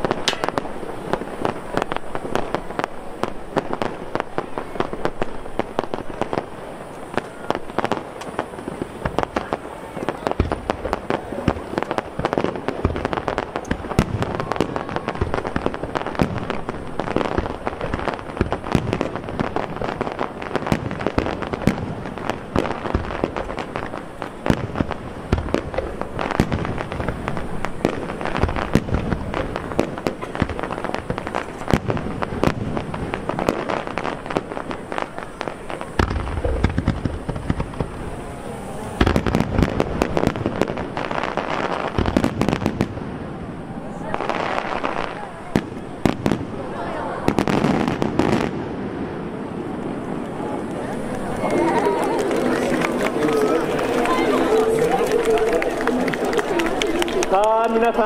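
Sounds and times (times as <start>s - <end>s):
firework shells bursting: 0.0s - 38.2s.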